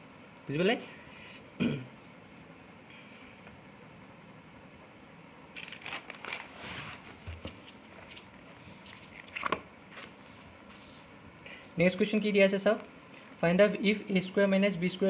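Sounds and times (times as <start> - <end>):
paper pages rustling: 5.6 - 11.0
pages settling thump: 9.2 - 10.2.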